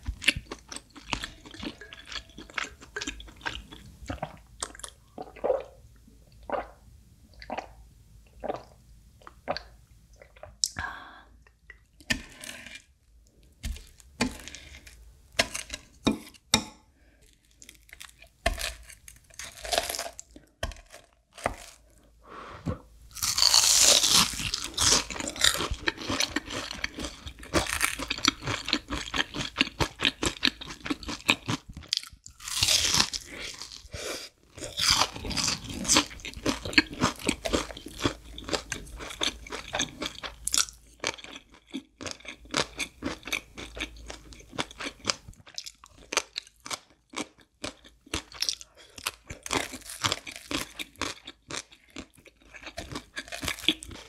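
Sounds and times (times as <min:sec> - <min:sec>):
crunching and chewing food: 0:00.0 - 0:05.5, 0:17.1 - 0:22.1, 0:23.1 - 0:33.9, 0:34.5 - 0:54.0
crunch of pickled radish: 0:17.3 - 0:21.9, 0:23.1 - 0:33.9.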